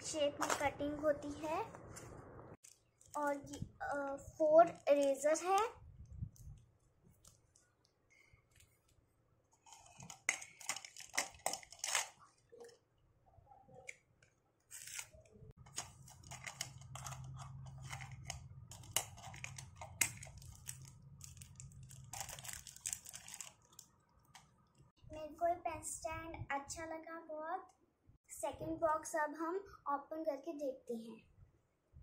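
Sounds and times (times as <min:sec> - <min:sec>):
plastic packaging crinkling: 0:02.6 - 0:03.6, 0:09.6 - 0:12.8, 0:14.6 - 0:24.9.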